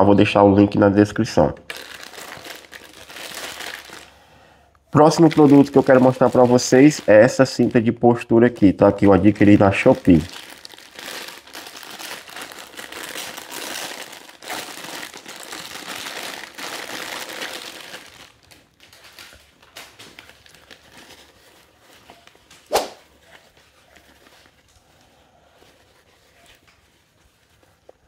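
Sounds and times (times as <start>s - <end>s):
plastic bag crinkling: 1.6s - 4.2s, 5.0s - 8.0s, 8.6s - 25.0s
sharp snap: 22.6s - 23.0s.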